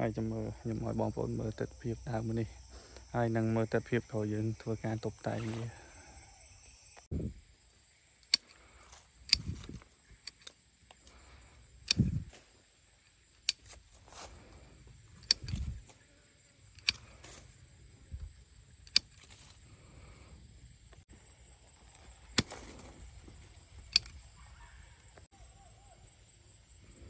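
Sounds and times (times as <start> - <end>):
pruning shears snipping: 11.8 - 12.5, 13.4 - 14.4, 15.1 - 16.0, 16.8 - 17.6, 18.8 - 19.6, 22.3 - 23.0
branches and leaves thumping: 21.8 - 23.9.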